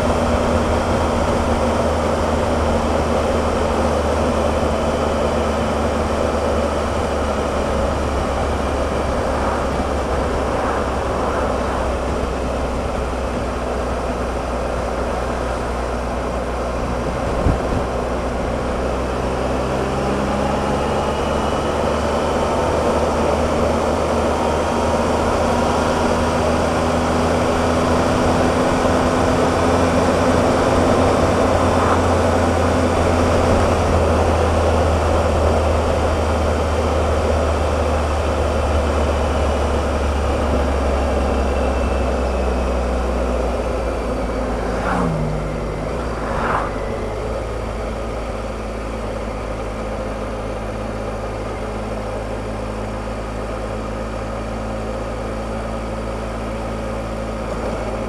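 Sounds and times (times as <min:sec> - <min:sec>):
wind rushing: 0:07.5 - 0:14.0, 0:29.3 - 0:34.6, 0:43.5 - 0:47.6.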